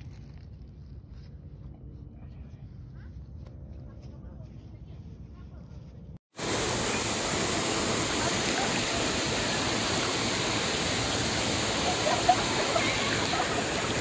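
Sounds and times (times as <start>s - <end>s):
river rushing around boulders: 6.4s - 14.0s.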